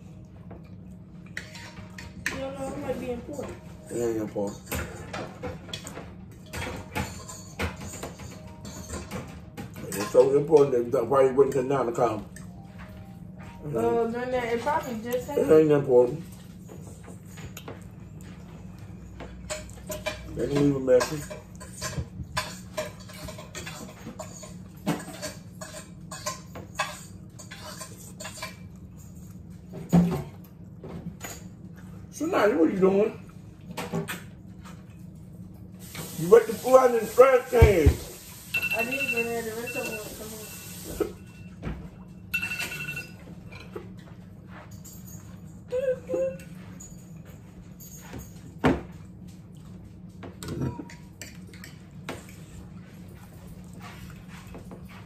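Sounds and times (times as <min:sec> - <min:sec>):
forks and plates clinking: 0:01.2 - 0:13.8, 0:14.6 - 0:31.6, 0:38.5 - 0:49.4
forks clicking on plates: 0:04.4 - 0:10.7, 0:19.2 - 0:29.4.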